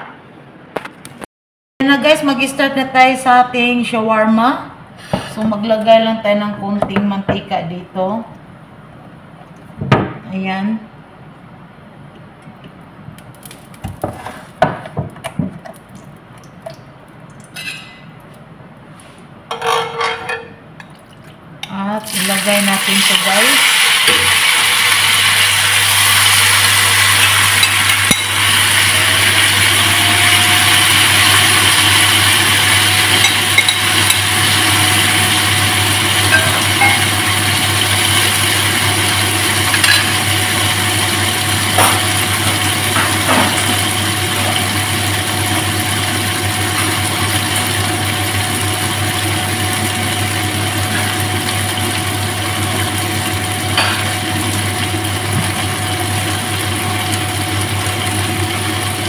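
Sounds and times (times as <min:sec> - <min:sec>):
chicken sizzling in hot oil: 0:22.1 - 0:59.0.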